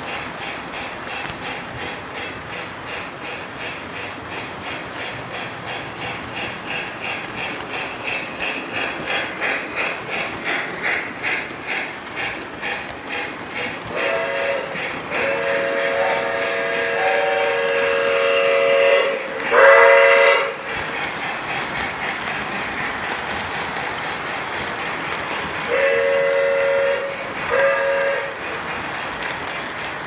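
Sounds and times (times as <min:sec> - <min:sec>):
steam locomotive chuffing: 0:00.0 - 0:30.0
train whistle: 0:13.9 - 0:20.7, 0:25.7 - 0:28.4.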